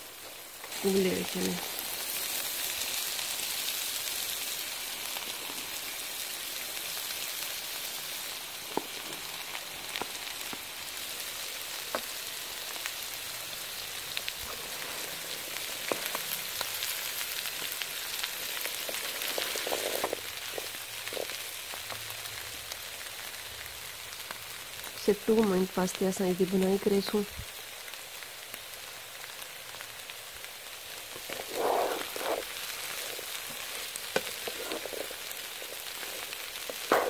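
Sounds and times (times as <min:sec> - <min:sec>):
chickpeas sizzling in pan: 0:00.0 - 0:37.0.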